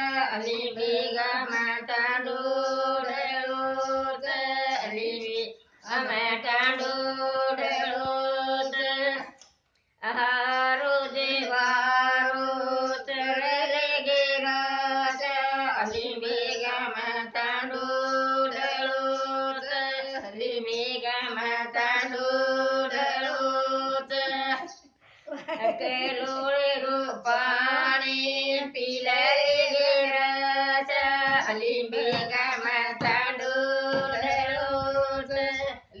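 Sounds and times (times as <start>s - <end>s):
woman singing folk song: 25.9s - 36.0s.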